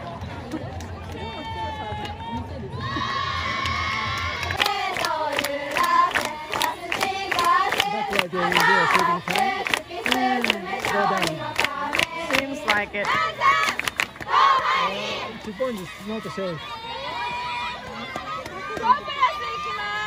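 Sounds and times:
women shouting and calling out: 18.6 - 20.0.

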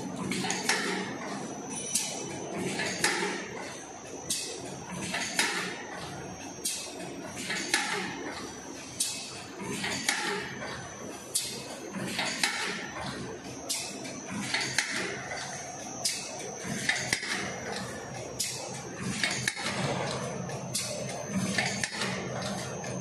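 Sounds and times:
steady mechanical clatter: 0.0 - 23.0.

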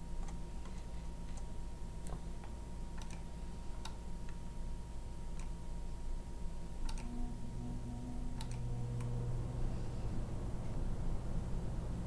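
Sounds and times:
faint steady hum: 0.0 - 12.0
computer mouse clicking: 2.9 - 4.4, 5.3 - 5.6, 6.8 - 7.1, 8.4 - 9.1.

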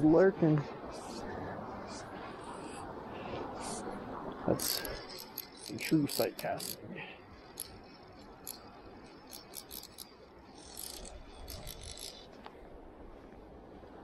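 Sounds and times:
fishing reel drag clicking: 4.6 - 6.8, 7.4 - 12.4.

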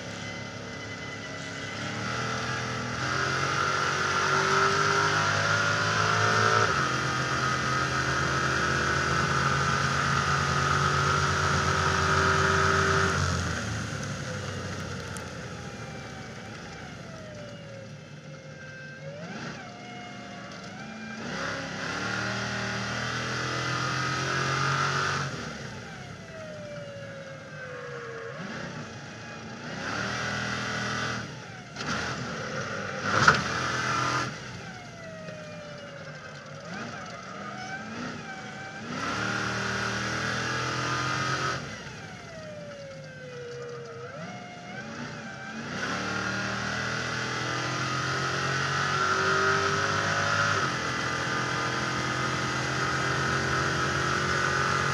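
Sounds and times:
truck engine revving: 0.0 - 18.4, 19.1 - 54.9.

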